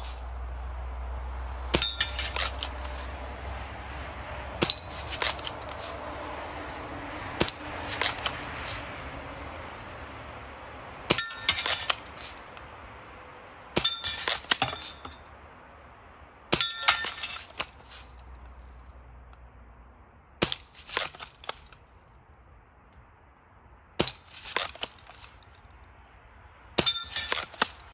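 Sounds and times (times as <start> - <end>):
bbs ringing on metal targets: 1.7 - 2.6, 11.1 - 11.9, 13.8 - 15.3, 16.5 - 17.4, 26.8 - 27.5.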